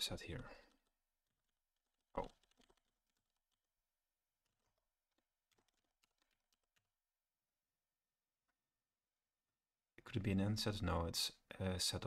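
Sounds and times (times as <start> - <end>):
faint keyboard typing: 0.4 - 3.8, 4.4 - 7.1.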